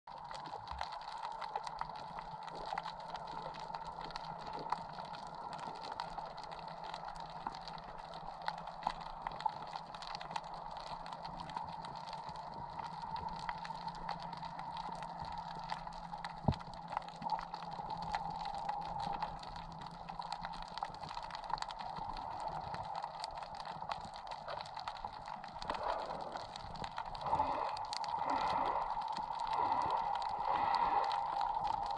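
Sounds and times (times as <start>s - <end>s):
underwater crackle of clicks: 0.1s - 31.9s
steady hum: 7.9s - 31.9s
rush of water movement: 8.2s - 31.9s.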